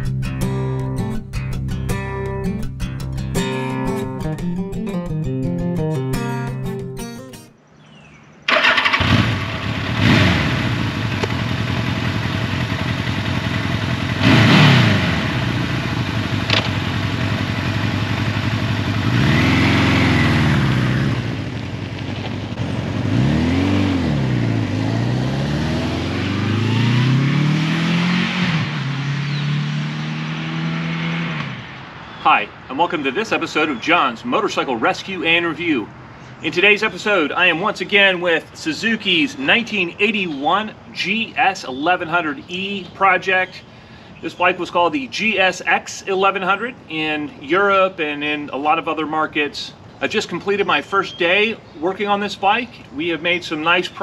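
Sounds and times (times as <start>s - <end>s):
motorcycle engine starting and revving: 8.5s - 32.0s
motorcycle riding off: 8.5s - 32.0s.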